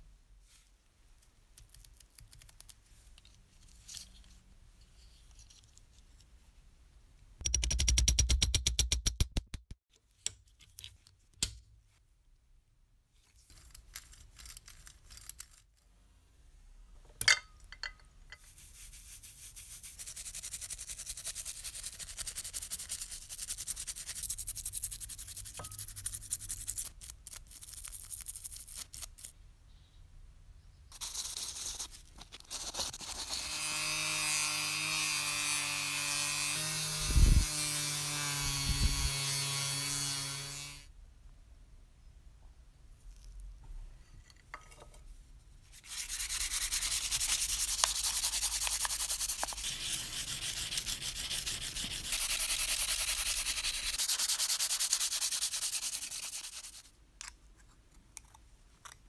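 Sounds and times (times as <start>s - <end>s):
toothbrush scrubbing: 31.0s - 33.5s, 45.8s - 56.9s
rotary tool whine: 33.3s - 40.9s.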